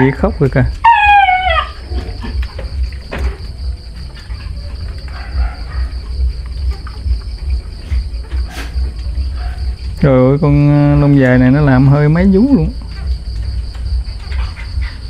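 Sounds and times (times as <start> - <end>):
puppy whining: 0.8 - 2.5
steady low rumble: 1.8 - 15.0.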